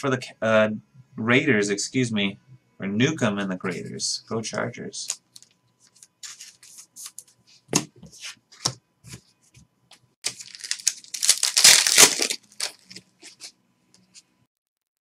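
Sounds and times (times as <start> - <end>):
cards clicking and rustling: 5.0 - 7.2, 10.3 - 13.5
foil card pack tearing: 10.2 - 13.5.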